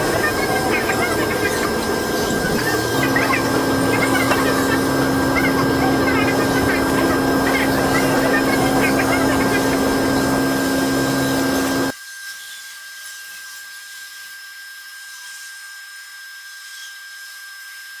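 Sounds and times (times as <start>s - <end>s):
monorail train whirring: 0.0s - 11.9s
thin steady high tone: 0.0s - 11.9s.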